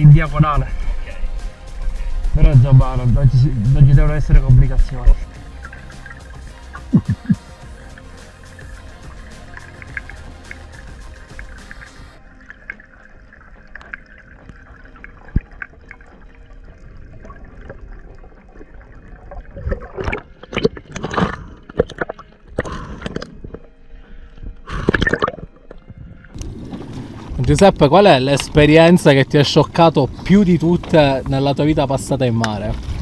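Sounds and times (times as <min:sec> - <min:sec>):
water splashing and gurgling: 0:00.0 - 0:33.0
underwater hiss: 0:05.4 - 0:12.2.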